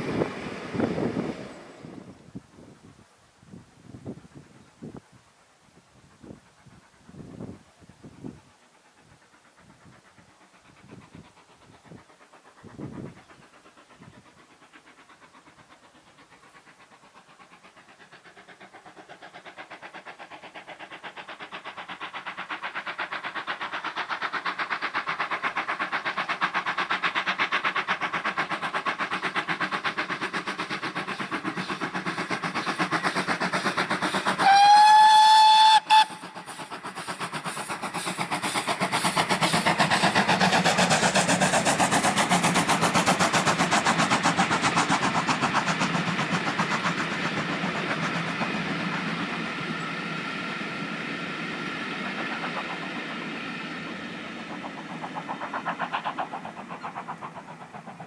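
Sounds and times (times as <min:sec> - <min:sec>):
steam locomotive exhaust beats: 0:00.0 - 0:58.0
steam whistle blast: 0:34.4 - 0:36.3.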